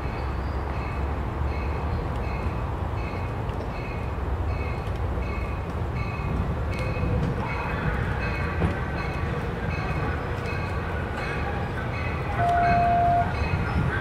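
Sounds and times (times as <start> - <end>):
train rumbling: 0.0 - 14.0
high-pitched train whine: 7.5 - 14.0
bell dinging: 12.4 - 13.4.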